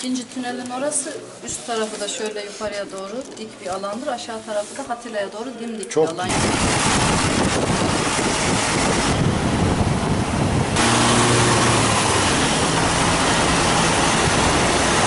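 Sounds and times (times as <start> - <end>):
wind rushing on microphone: 6.2 - 15.0
van engine and road noise: 6.3 - 15.0.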